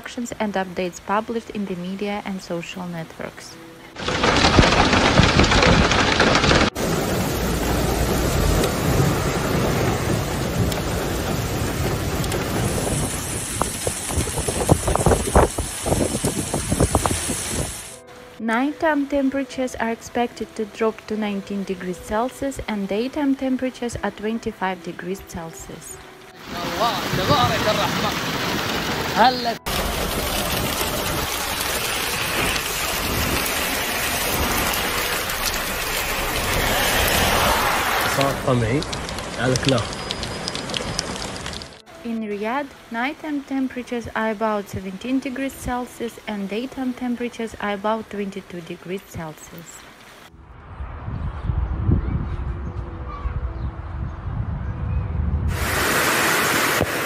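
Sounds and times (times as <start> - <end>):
heavy rain: 3.8 - 18.0, 26.2 - 50.3, 55.5 - 57.0
wind buffeting microphone: 4.0 - 17.9, 50.4 - 56.2.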